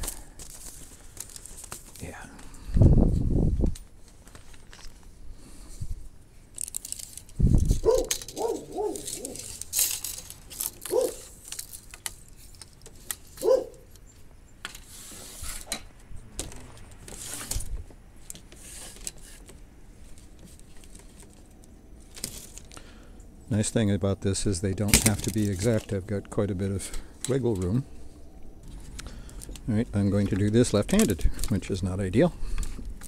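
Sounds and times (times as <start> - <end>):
rustling: 0.0 - 23.1.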